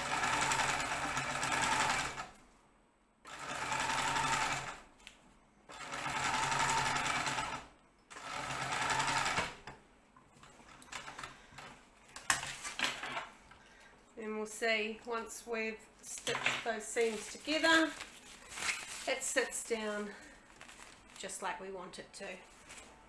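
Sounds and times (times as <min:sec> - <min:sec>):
sewing machine stitching: 0:00.0 - 0:02.3, 0:03.3 - 0:04.8, 0:05.7 - 0:09.7.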